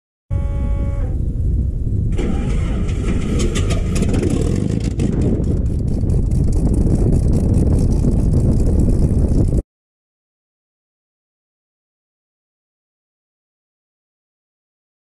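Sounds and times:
aircraft engine rough rumble: 0.3 - 9.6
wind buffeting on microphone: 0.3 - 9.6.

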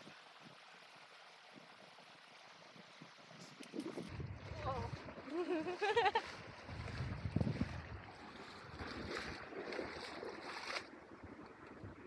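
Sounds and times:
stream water running: 0.0 - 12.0
water splashes from wading: 0.0 - 12.0
wind on microphone: 2.8 - 12.0.

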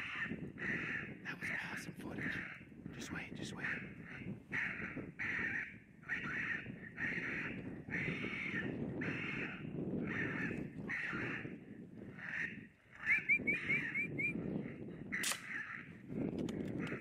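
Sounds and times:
sharp click: 15.2 - 15.5.

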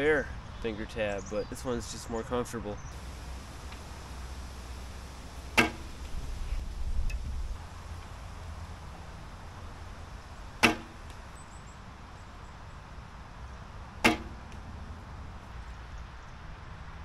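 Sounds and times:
bowstring thwacks: 5.5 - 6.1, 10.6 - 11.2, 14.0 - 14.6.

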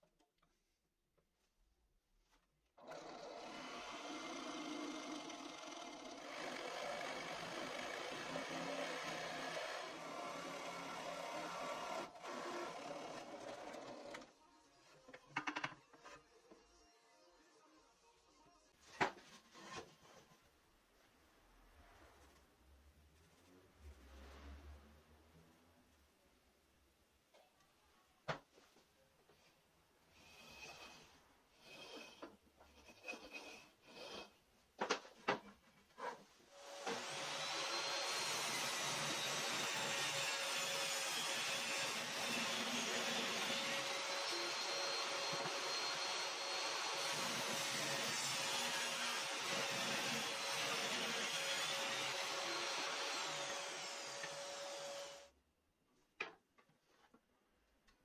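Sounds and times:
table saw running: 2.8 - 13.6, 36.6 - 55.3.

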